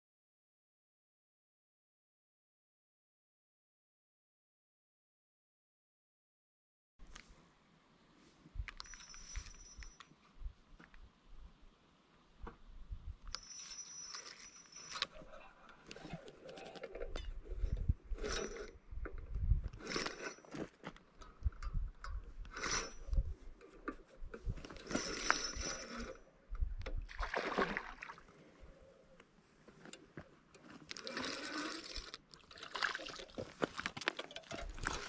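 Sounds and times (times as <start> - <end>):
fishing rod and reel clicks: 24.8 - 26.2, 30.9 - 32.6
fish splashing at water surface: 27.1 - 28.2.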